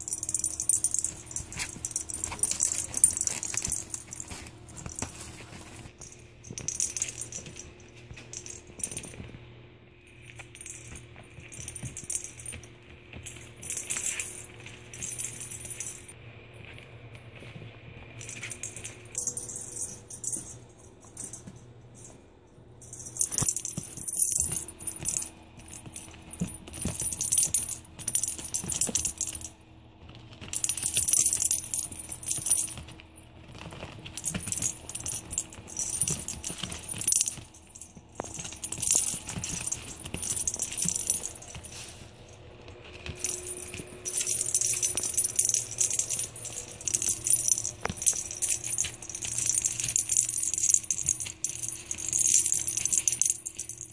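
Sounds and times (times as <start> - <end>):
small jingle bells shaking: 0.0 - 9.4, 10.0 - 16.2, 18.2 - 22.2, 22.8 - 29.6, 30.2 - 53.9.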